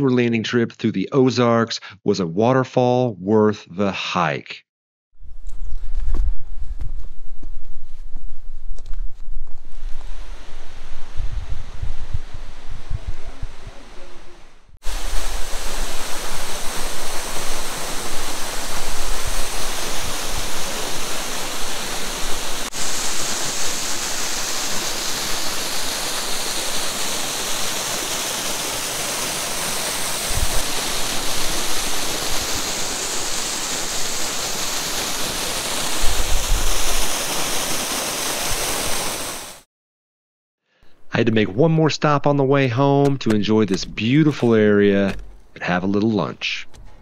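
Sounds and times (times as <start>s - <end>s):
waterfall splashing into pool: 14.8s - 39.7s.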